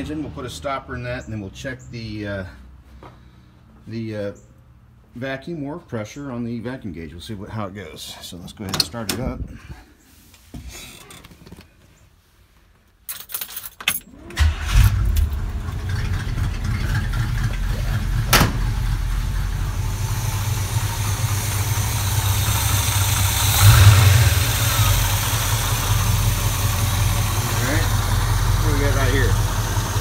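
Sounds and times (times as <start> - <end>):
engine cranking and idling: 14.1 - 30.0.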